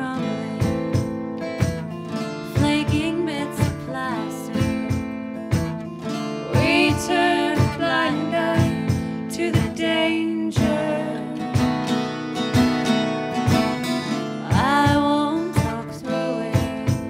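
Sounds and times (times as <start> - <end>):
woman singing folk melody: 0.0 - 12.9, 13.7 - 17.0
acoustic guitars strummed: 0.0 - 17.0.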